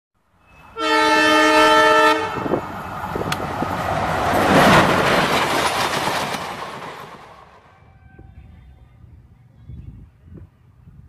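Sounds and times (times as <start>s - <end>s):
train passing with rumble and clatter: 0.2s - 11.0s
locomotive horn chord: 0.5s - 2.6s.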